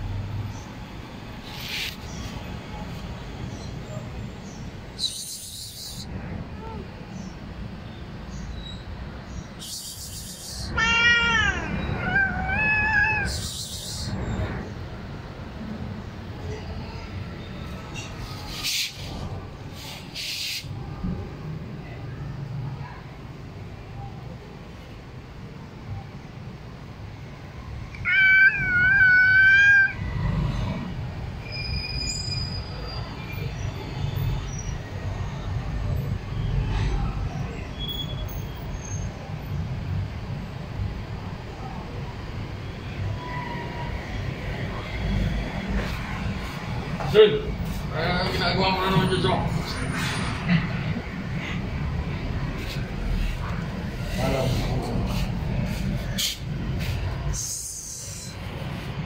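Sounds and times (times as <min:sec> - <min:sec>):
cat hissing: 0:01.4 - 0:02.3, 0:09.6 - 0:14.3, 0:18.3 - 0:20.7, 0:27.9 - 0:30.7
cat yowling: 0:10.7 - 0:13.5, 0:27.9 - 0:30.1.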